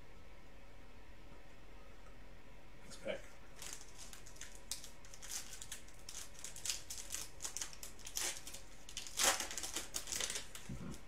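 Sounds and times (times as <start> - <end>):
foil wrapper tearing and crinkling: 3.6 - 10.8.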